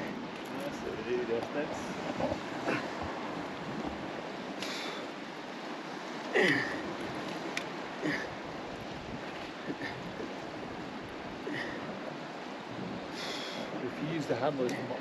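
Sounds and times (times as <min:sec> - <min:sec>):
sea surf: 0:00.0 - 0:15.0
wind: 0:00.0 - 0:15.0.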